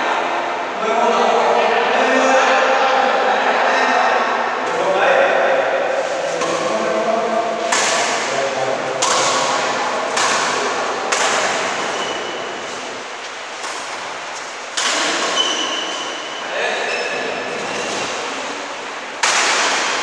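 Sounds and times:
racket striking shuttlecock: 7.6 - 8.4, 9.0 - 16.3, 19.2 - 20.0.

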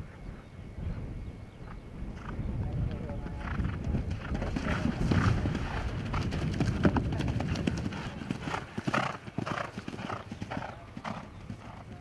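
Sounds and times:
horse hoofbeats galloping on grass: 2.2 - 12.0
horse splashing through water: 4.1 - 8.7.

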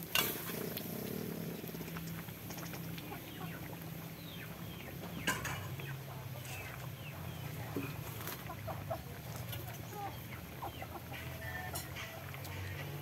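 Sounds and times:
chickens clucking: 0.5 - 13.0.

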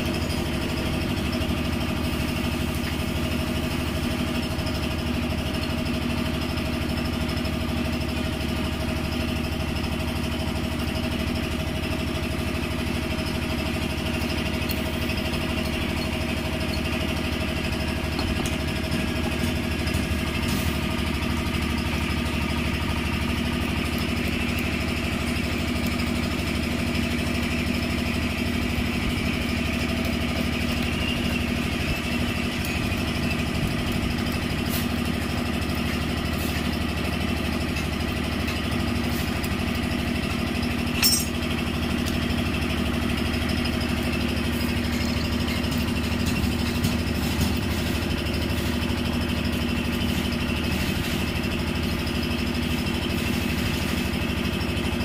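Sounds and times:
engine droning: 0.0 - 55.0.

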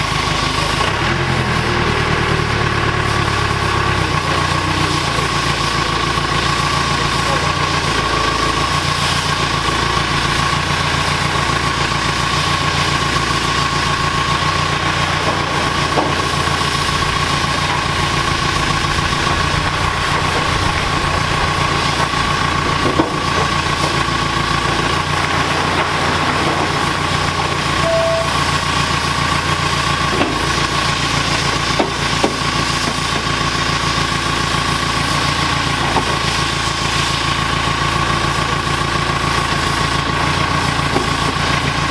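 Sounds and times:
diesel engine idling: 0.0 - 41.9
high whine: 16.5 - 24.0, 27.6 - 28.8.

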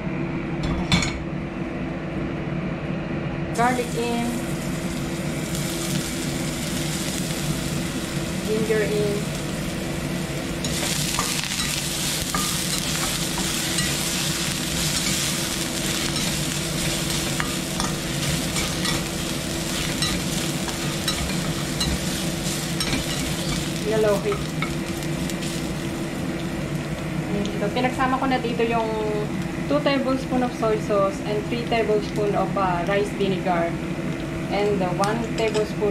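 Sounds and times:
steady low hum: 0.0 - 35.9
garlic sizzling in oil: 3.6 - 29.8.

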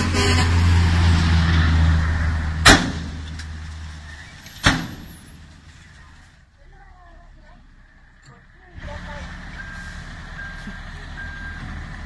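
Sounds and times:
diesel truck engine running: 0.0 - 12.0
sharp bangs: 2.6 - 3.6, 4.4 - 5.7.

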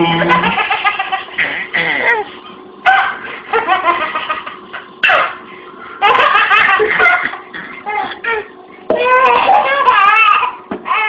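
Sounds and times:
baby laughing: 0.2 - 2.3, 6.0 - 11.0.

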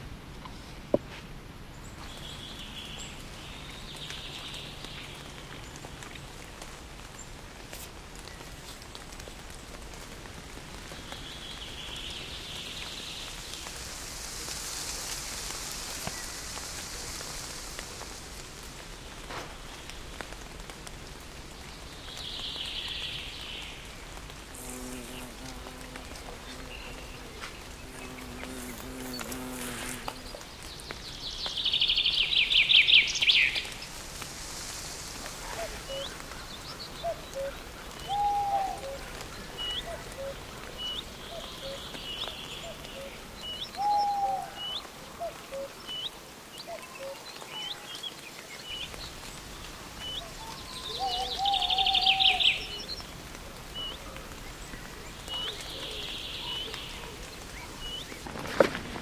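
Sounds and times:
wind rustling leaves: 0.0 - 59.0
bird or insect chirps: 50.0 - 53.0.

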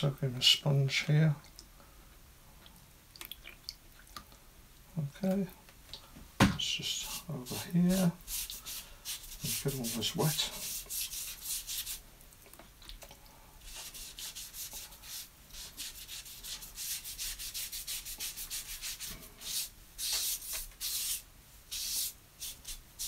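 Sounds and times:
sponge rubbing on paper: 6.9 - 12.0, 13.6 - 23.0.

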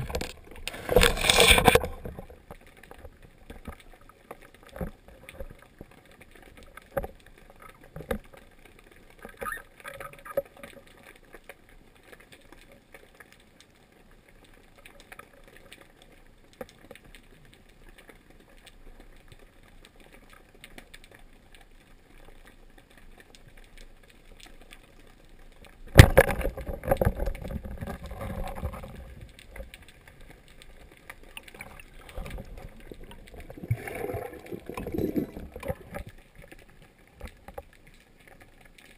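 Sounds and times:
faint underwater clicks and knocks: 0.0 - 38.9
churning water: 31.1 - 36.4.

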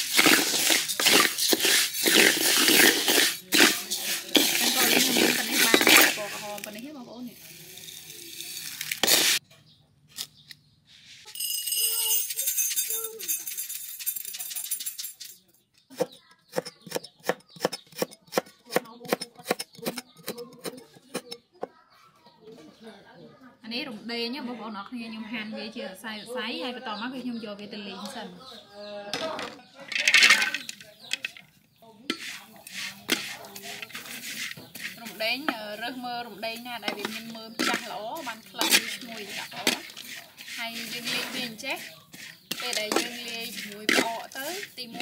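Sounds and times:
spatula scraping pan: 0.0 - 6.8, 7.8 - 9.4, 32.1 - 45.0
rice grains rattling in pan: 0.0 - 9.4, 30.0 - 31.4, 32.1 - 45.0.

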